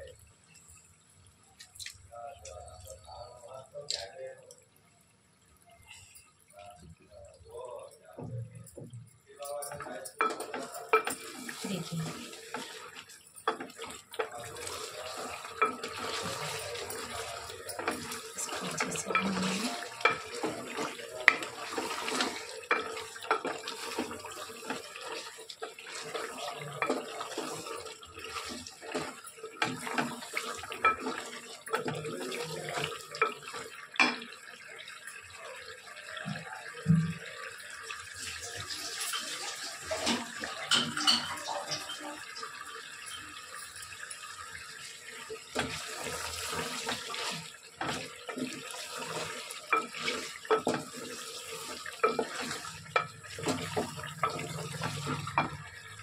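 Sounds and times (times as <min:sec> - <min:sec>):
tap water running and splashing: 0:00.0 - 0:56.0
dishes clinking and knocking: 0:08.2 - 0:25.0, 0:26.1 - 0:34.4, 0:38.7 - 0:42.4, 0:47.8 - 0:55.9.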